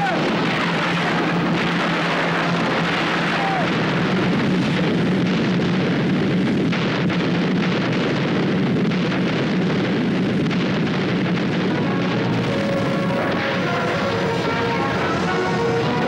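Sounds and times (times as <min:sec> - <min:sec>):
artillery barrage rumble: 0:00.0 - 0:16.0
faint music: 0:11.6 - 0:16.0.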